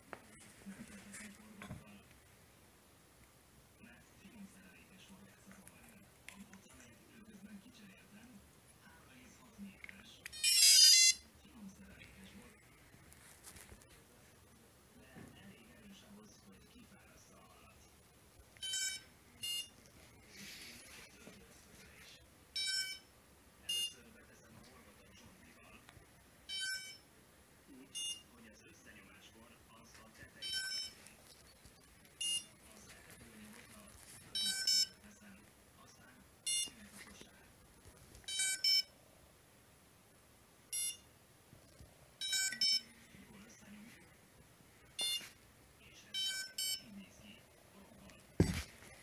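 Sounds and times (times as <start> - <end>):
electronic beeps: 30.4 - 31.0, 34.4 - 35.0, 38.3 - 38.9, 42.2 - 42.9.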